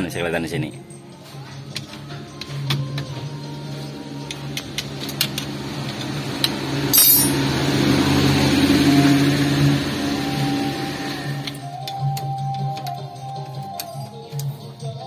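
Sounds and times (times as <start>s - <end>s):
metal tools clinking: 6.9s - 7.4s.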